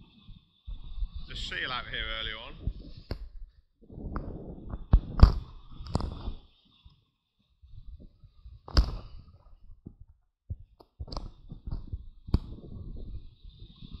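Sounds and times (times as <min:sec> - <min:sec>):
wind buffeting microphone: 0:00.7 - 0:06.4, 0:09.8 - 0:14.0
surf breaking over rocks: 0:01.3 - 0:03.1.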